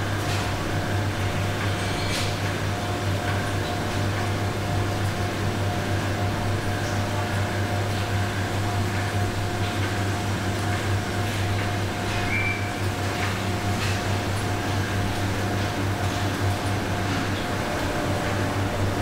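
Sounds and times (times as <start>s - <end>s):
factory machinery hum: 0.0s - 19.0s
high machine whine: 16.4s - 19.0s.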